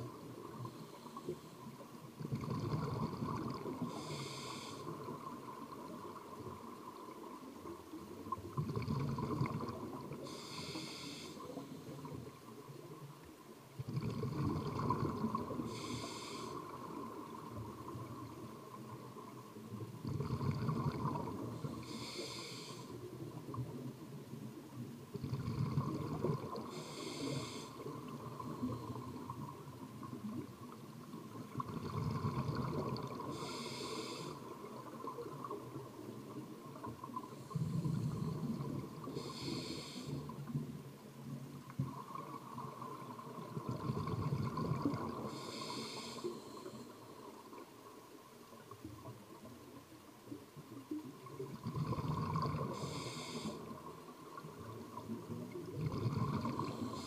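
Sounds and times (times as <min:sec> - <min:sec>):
regulator hissing on inhale: 0:00.4 - 0:01.8, 0:03.7 - 0:05.3, 0:10.2 - 0:12.2, 0:15.5 - 0:17.1, 0:21.5 - 0:23.1, 0:26.6 - 0:29.3, 0:32.8 - 0:34.6, 0:37.2 - 0:40.6, 0:45.2 - 0:47.2, 0:52.0 - 0:53.8, 0:56.3 - 0:57.0
exhaled bubbles rumbling: 0:02.2 - 0:04.0, 0:08.2 - 0:10.2, 0:13.8 - 0:15.7, 0:19.7 - 0:21.7, 0:25.1 - 0:26.8, 0:27.9 - 0:33.4, 0:40.6 - 0:45.3, 0:50.8 - 0:53.0, 0:53.7 - 0:57.0.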